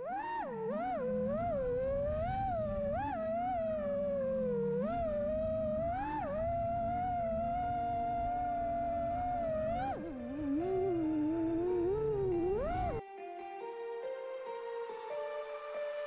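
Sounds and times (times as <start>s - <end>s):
drone motors whining: 0.0s - 13.0s
low rushing noise: 0.6s - 13.0s.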